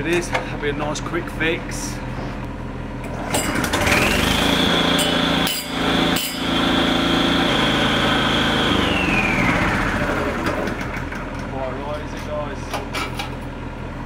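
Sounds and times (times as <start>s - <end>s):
brick saw engine whining: 3.2s - 11.2s.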